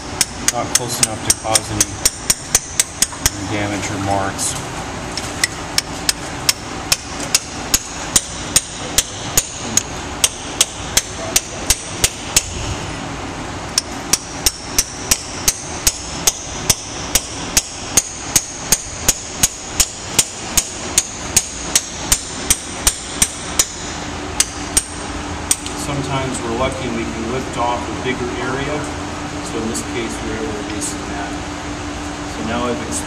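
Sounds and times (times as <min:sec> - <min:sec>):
hammer striking chisel: 0:00.2 - 0:03.4, 0:05.8 - 0:12.6, 0:13.8 - 0:23.8, 0:24.4 - 0:25.6.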